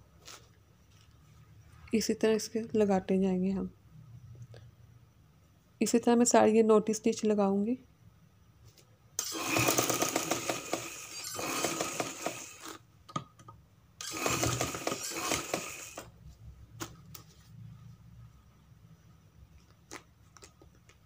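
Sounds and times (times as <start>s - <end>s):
sewing machine stitching: 9.2s - 12.8s, 14.0s - 16.1s.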